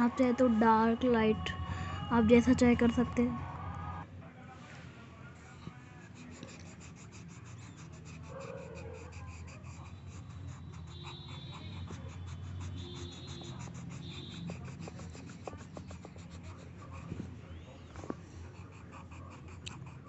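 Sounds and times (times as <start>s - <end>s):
colour pencil scratching on paper: 5.7s - 20.0s.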